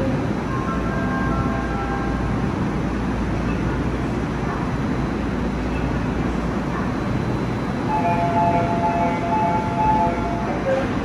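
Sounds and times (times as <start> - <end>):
subway train humming: 0.0 - 11.0
train doors closing: 0.0 - 11.0
two-note door warning chime: 7.9 - 10.9.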